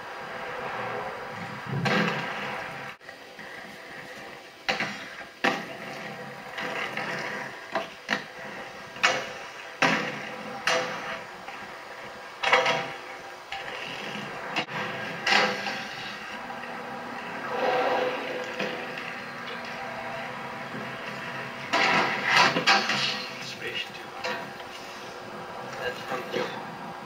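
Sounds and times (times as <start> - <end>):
skate wheels rolling on pavement: 0.0 - 27.0
skates clacking and scraping on rails: 0.0 - 27.0.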